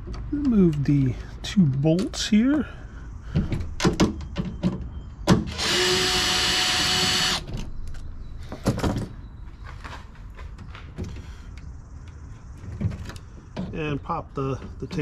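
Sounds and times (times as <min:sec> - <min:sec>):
cordless drill spinning: 0:05.5 - 0:07.4.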